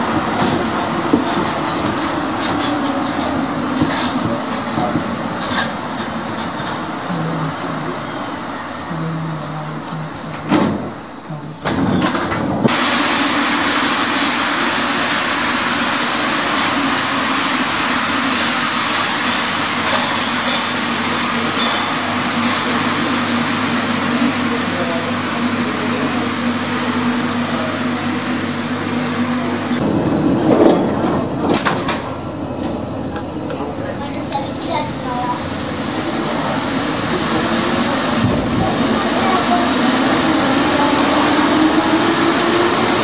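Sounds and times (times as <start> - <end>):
train rumble and hiss: 0.0 - 43.0.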